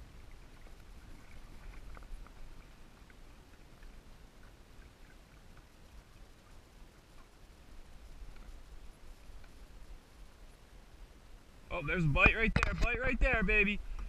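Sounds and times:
faint water splashing and dripping: 0.0 - 14.0
small ticks: 0.5 - 9.8.

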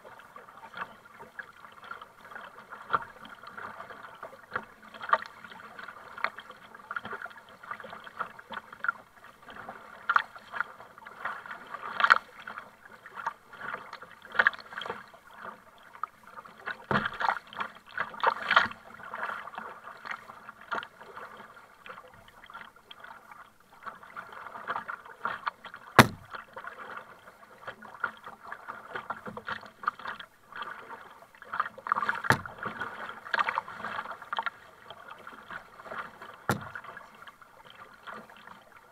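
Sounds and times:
paddle splashing through water: 0.0 - 38.9
water sloshing against hull: 0.0 - 38.9
sharp knock: 26.0 - 26.3, 32.3 - 32.5, 36.5 - 36.8.

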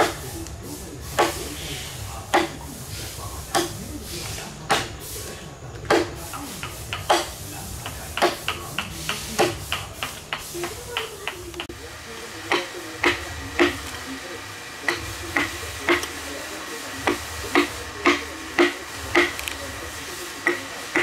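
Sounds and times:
lighter wooden knocks: 0.0 - 1.6, 2.3 - 2.8, 3.5 - 11.8, 12.5 - 14.1, 17.0 - 21.0.

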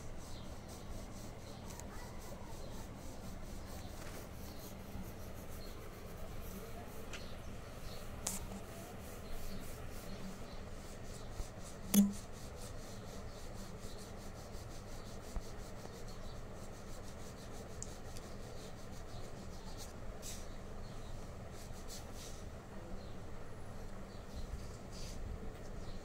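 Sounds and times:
pencil scratching on paper: 0.0 - 20.6.

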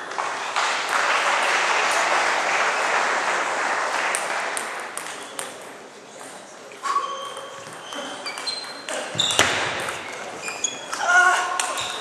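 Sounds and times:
spectators applauding: 0.0 - 5.0.

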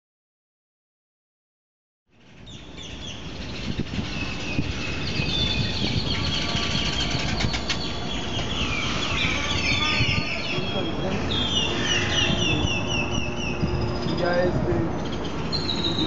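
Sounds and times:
birds chirping: 2.4 - 16.0
steady low rumble: 2.9 - 16.0.

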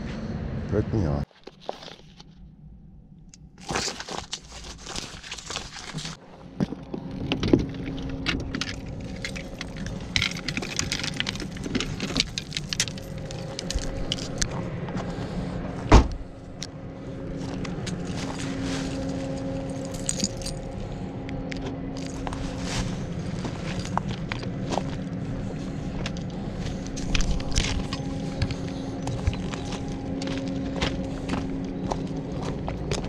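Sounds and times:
steady low hum: 0.0 - 1.3, 5.9 - 33.0
fishing gear rattling and clattering: 3.6 - 14.6, 17.4 - 20.8, 22.0 - 25.0, 26.0 - 31.4
loud thump: 15.9 - 16.2.

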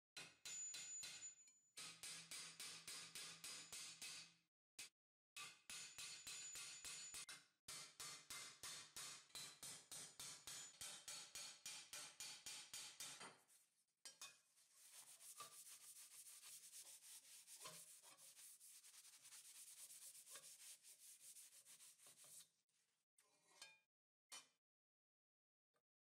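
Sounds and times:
hammer striking steel plate: 0.2 - 4.4, 5.4 - 13.4
hand sanding strokes on metal: 14.6 - 22.5.

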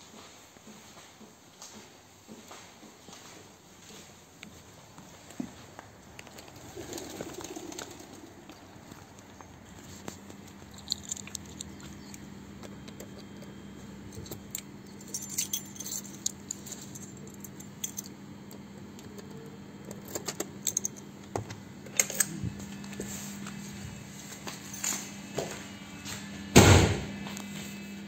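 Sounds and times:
steady low hum: 0.0 - 28.0
small metallic clicks and rattles: 9.1 - 21.3.

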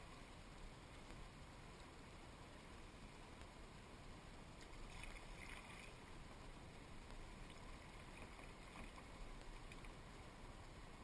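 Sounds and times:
kayak paddle dipping in water: 4.6 - 6.0, 7.4 - 10.0
soft water splash: 4.6 - 6.2, 7.3 - 10.0.

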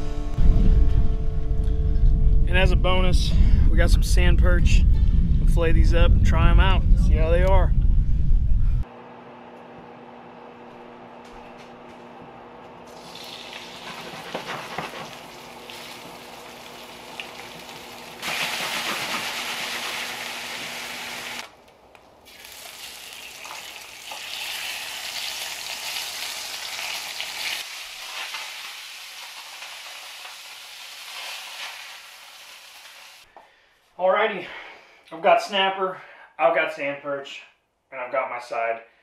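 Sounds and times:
fish sizzling in hot oil: 12.9 - 21.4, 22.3 - 33.2.

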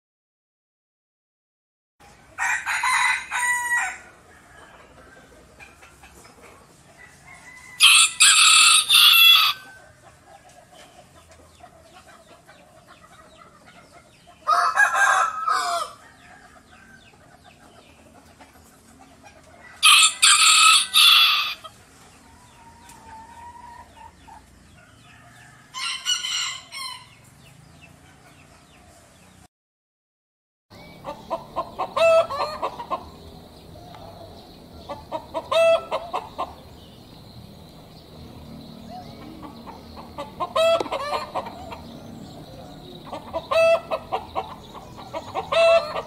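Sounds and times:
rooster crowing: 2.4 - 5.4, 7.0 - 9.9, 14.4 - 17.2, 19.6 - 21.7, 24.8 - 27.2, 30.8 - 46.0.

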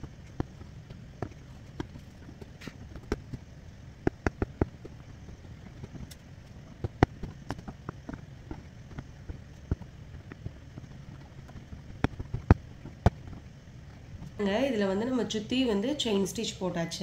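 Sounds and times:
low steady hum: 0.0 - 17.0
needle clicking through fabric: 4.0 - 14.4.

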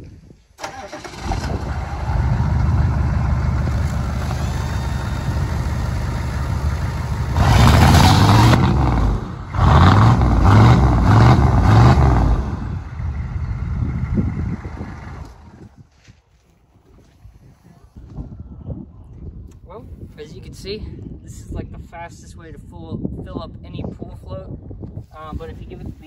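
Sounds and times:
diesel engine idling and revving: 0.6 - 15.7.

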